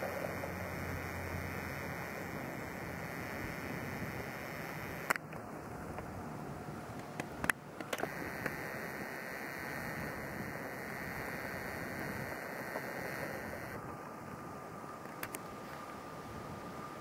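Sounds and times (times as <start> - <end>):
faint steady tone: 0.0 - 17.0
outdoor ambience hiss: 0.0 - 17.0
light clicks: 15.0 - 15.5.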